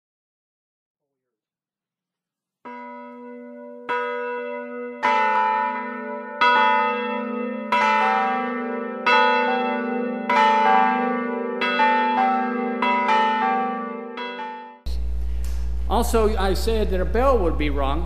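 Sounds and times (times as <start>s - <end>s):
church bells ringing: 2.6s - 18.0s.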